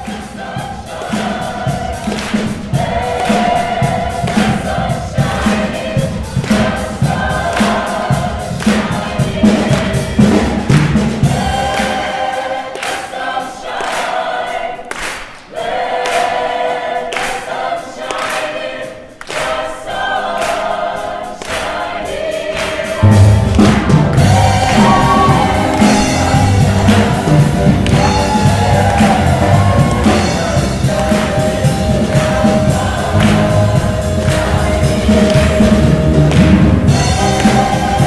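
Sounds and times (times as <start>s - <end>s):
mixed choir singing: 0.0s - 38.0s
musical accompaniment with deep bass: 22.6s - 38.0s.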